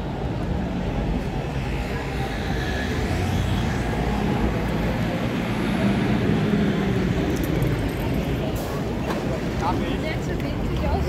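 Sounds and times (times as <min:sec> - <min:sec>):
pedestrians' voices: 0:00.0 - 0:11.0
traffic rumble: 0:00.0 - 0:11.0.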